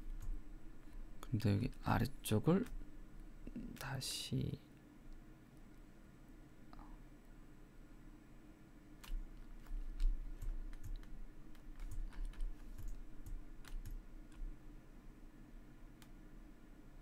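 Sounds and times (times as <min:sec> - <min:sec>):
computer keyboard clicking: 0:09.0 - 0:14.5.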